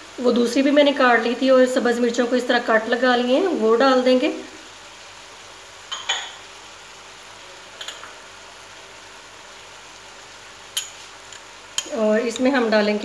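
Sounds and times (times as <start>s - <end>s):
chicken sizzling in a wok: 0.0s - 13.0s
kitchenware clinking: 5.9s - 6.4s, 7.8s - 8.2s, 10.8s - 12.0s.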